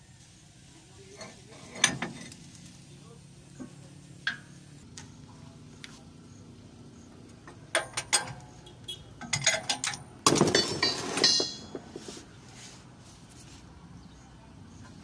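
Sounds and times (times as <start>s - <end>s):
metal scraping clatter: 1.1s - 2.7s, 7.5s - 8.6s, 9.2s - 12.2s
metal tools clinking: 1.2s - 2.4s, 7.4s - 8.6s, 9.2s - 12.0s
metallic ring: 9.2s - 11.8s.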